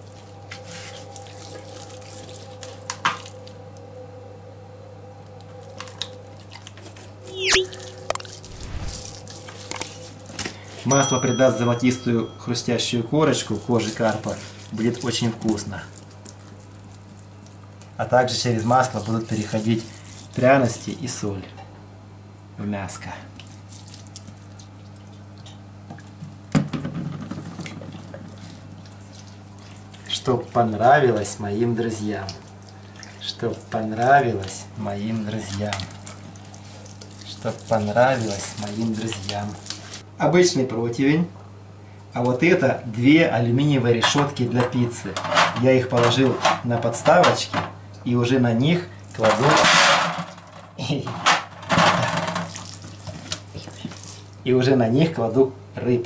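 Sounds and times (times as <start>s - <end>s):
steady low hum: 7.0s - 16.0s
low hum: 7.2s - 9.5s
short loud falling squeak: 7.3s - 9.1s.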